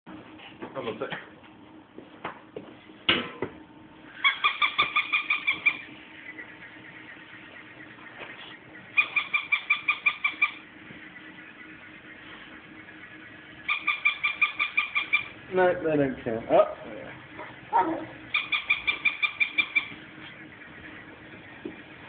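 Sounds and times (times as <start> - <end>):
squeaky dog toy squeaking: 17.9 - 19.9.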